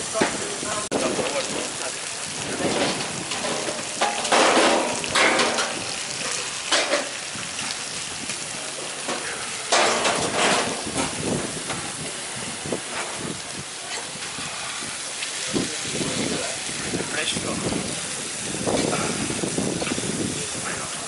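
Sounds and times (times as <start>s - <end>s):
beef sizzling on a griddle: 0.0s - 21.0s.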